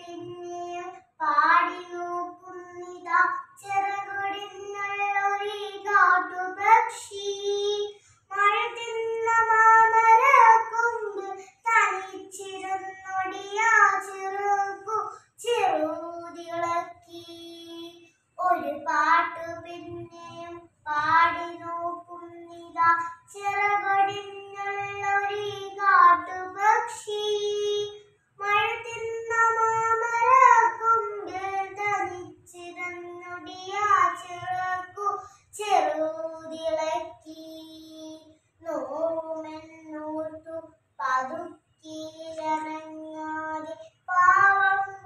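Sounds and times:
girl singing unaccompanied: 0.0 - 45.0.

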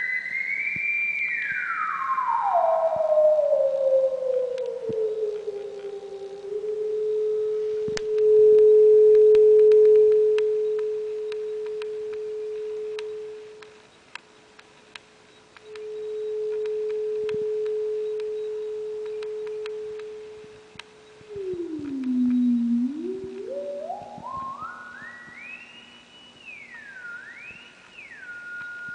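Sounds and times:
sine-wave test tone with reverb: 0.0 - 28.9
faint sharp ticks: 7.9 - 15.9, 16.5 - 22.5.

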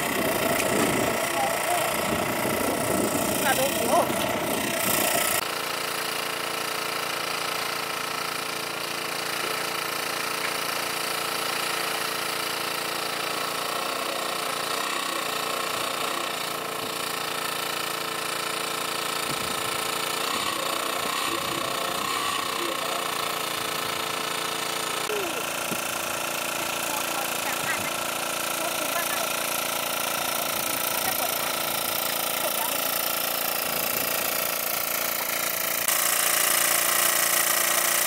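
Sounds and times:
water pump engine running: 0.0 - 38.0.

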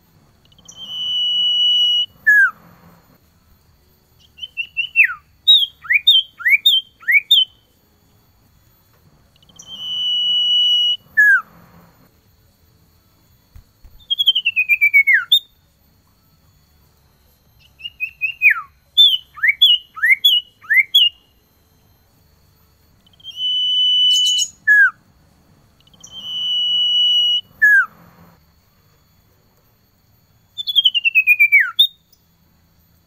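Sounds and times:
bird singing: 0.4 - 2.9, 4.2 - 7.7, 9.3 - 11.9, 13.8 - 15.8, 17.5 - 21.4, 23.0 - 25.0, 25.7 - 28.0, 30.5 - 32.4.

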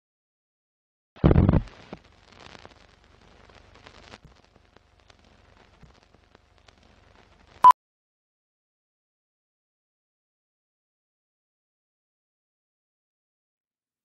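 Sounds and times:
clicks and pops: 1.2 - 2.7
old film crackle: 1.2 - 7.6.

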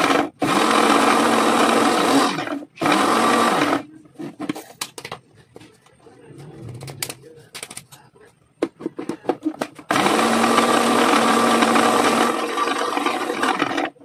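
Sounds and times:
blender motor running: 0.0 - 3.8, 9.9 - 14.0.

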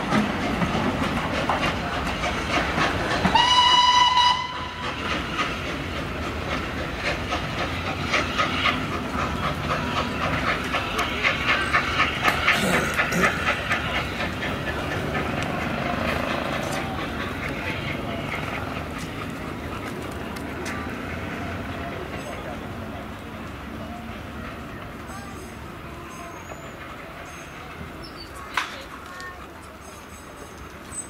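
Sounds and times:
rhythmic train chugging: 0.0 - 30.9
train whistle blast: 3.3 - 4.8.

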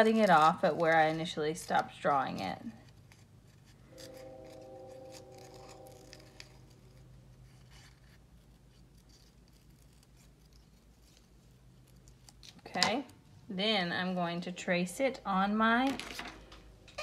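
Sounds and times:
faint held tone: 3.8 - 7.1
scissors snipping paper: 5.1 - 13.0.

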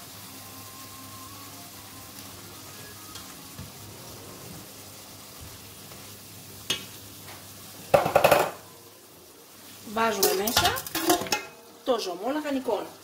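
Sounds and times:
sausage sizzling in a pot: 0.0 - 13.0
sharp knock against pot: 7.9 - 8.6.

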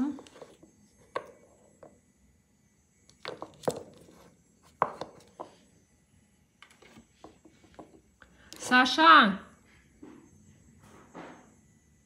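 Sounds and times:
small bottles knocking on a table: 3.1 - 4.2, 4.8 - 5.6.

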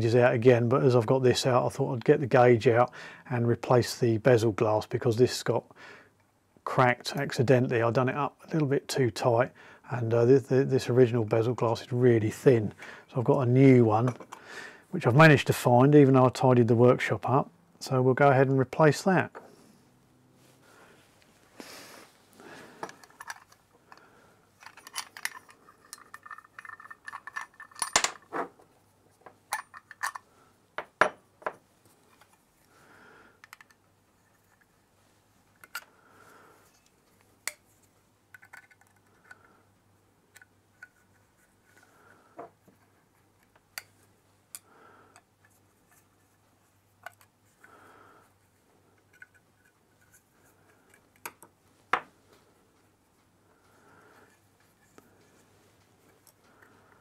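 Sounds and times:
small metal clicks and scrapes: 24.6 - 28.0, 38.3 - 39.5, 48.9 - 51.4.

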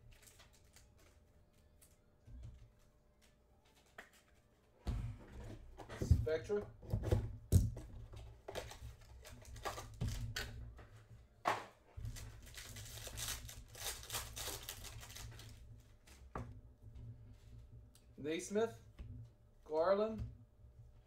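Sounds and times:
packaging tearing: 12.1 - 15.5.

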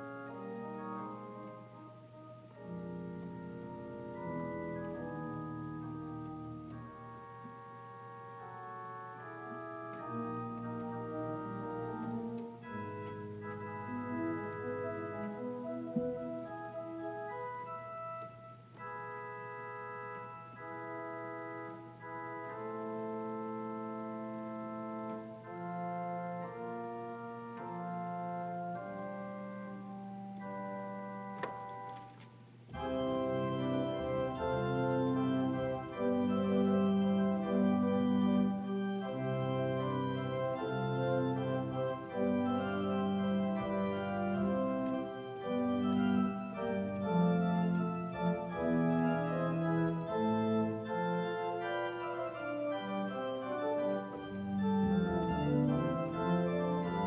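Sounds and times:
organ playing chords: 0.0 - 57.0.

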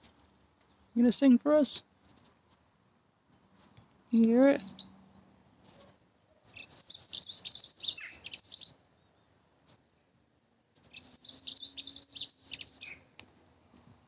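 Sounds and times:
bird warbling song: 2.0 - 2.4, 3.3 - 9.4, 10.8 - 13.2.

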